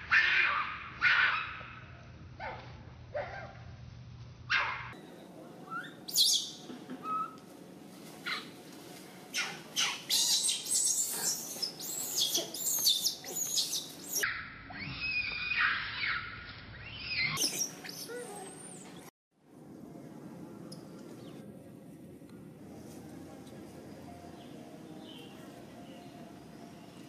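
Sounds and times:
animal chirps and squeaks: 5.7 - 7.4, 9.3 - 14.2, 16.8 - 18.9.

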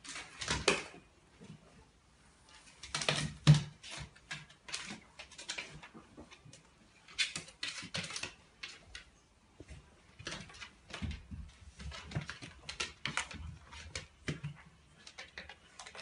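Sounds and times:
dog claws tapping on floor: 2.8 - 16.0.

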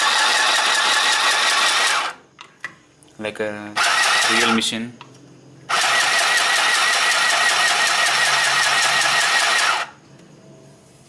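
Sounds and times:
sewing machine stitching: 0.0 - 2.2, 3.8 - 4.6, 5.7 - 9.9.

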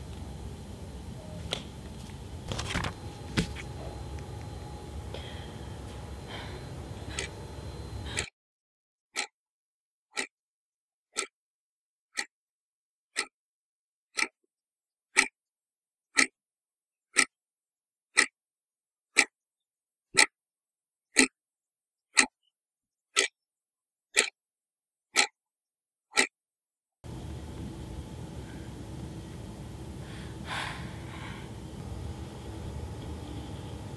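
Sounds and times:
clock ticking: 9.2 - 9.4, 10.1 - 10.3, 11.1 - 11.3, 14.2 - 14.4, 24.2 - 24.4, 25.2 - 25.4, 26.1 - 26.3.

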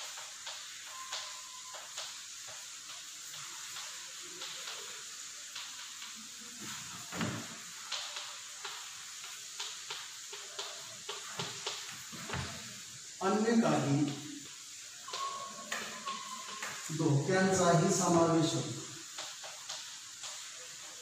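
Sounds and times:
steady hiss: 0.0 - 21.0.

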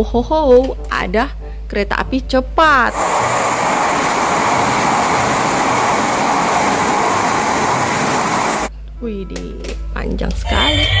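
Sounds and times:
train running: 2.9 - 8.7.

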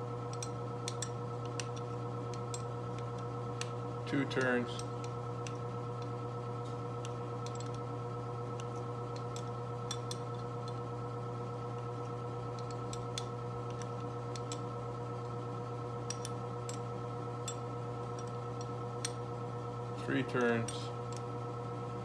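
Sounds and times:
furnace humming: 0.0 - 22.0.

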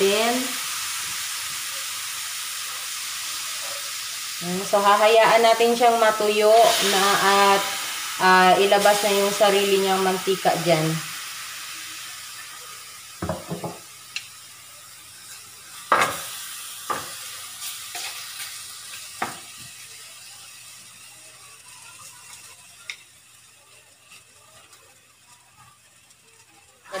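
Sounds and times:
meat sizzling in a frying pan: 0.0 - 27.0
wooden spatula knocking on pan: 13.2 - 13.8.

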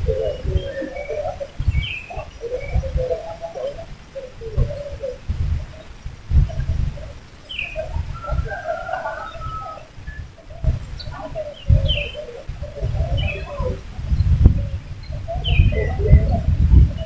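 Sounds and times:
bird cooing: 0.0 - 13.9, 14.6 - 17.0
high bird chirps: 7.5 - 12.3.

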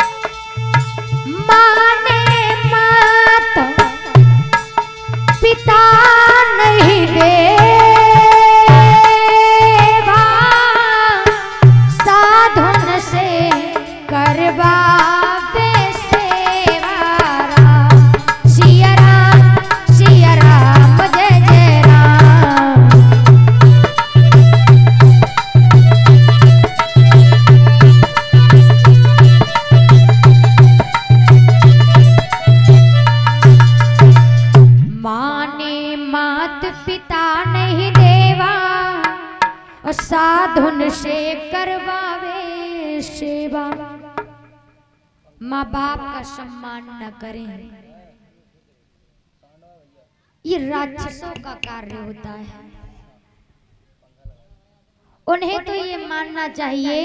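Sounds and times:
hand drums: 0.0 - 35.0, 37.6 - 40.3
woman singing devotional song: 1.2 - 4.6, 5.2 - 25.3, 34.8 - 44.6, 45.4 - 48.0, 50.4 - 53.1, 55.2 - 57.0
steady held notes: 12.7 - 34.9.

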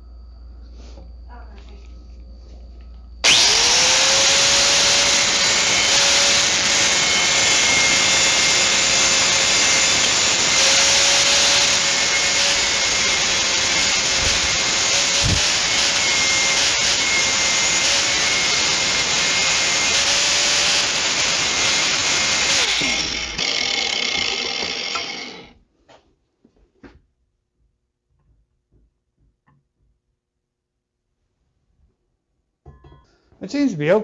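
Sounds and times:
grinder grinding steel: 3.2 - 25.6.

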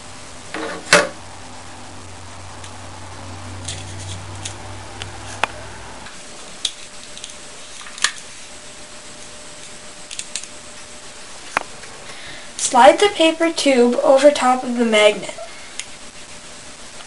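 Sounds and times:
low hum: 0.0 - 13.6.

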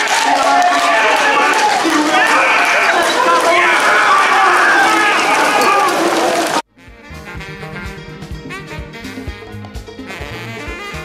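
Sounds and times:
background music with steady beat: 6.7 - 11.0.

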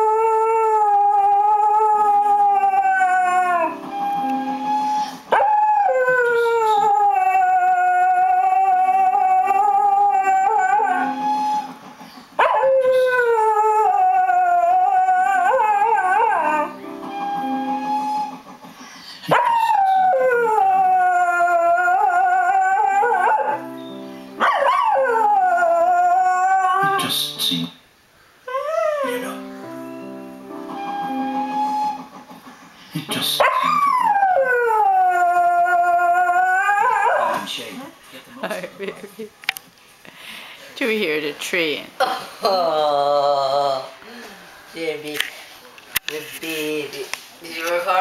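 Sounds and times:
dog howling: 0.0 - 3.8, 5.3 - 11.2, 12.4 - 16.8, 19.3 - 23.6, 24.4 - 27.0, 33.4 - 37.5
television advert music: 1.2 - 6.9, 10.2 - 13.6, 15.0 - 25.7, 26.7 - 27.8, 28.9 - 35.6.

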